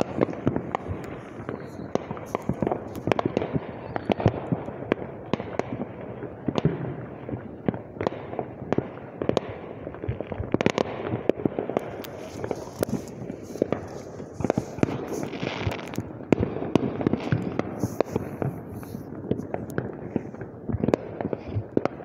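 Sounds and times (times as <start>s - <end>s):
fireworks bangs and pops: 0.0s - 22.0s.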